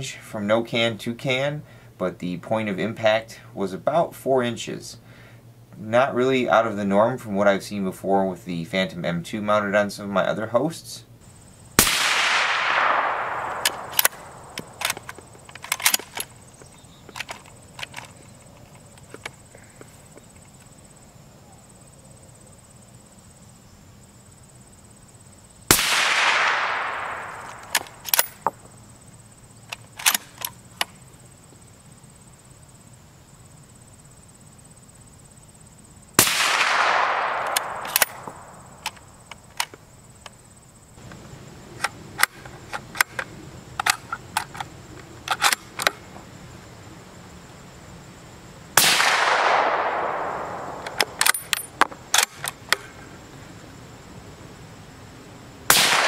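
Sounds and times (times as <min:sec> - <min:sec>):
suppressed rifle shots with echo: 0:11.8 - 0:16.3, 0:25.7 - 0:28.5, 0:36.2 - 0:39.0, 0:48.8 - 0:52.3, 0:55.7 - 0:56.0
rifle bolt clicks: 0:12.2 - 0:16.3, 0:17.1 - 0:18.2, 0:26.1 - 0:28.5, 0:29.7 - 0:30.9, 0:36.6 - 0:39.8, 0:41.8 - 0:44.7, 0:45.3 - 0:46.0, 0:49.0 - 0:52.9.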